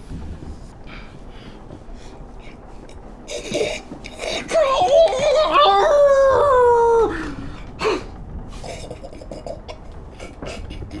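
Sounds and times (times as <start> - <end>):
man howling like a wolf: 4.6 - 7.5.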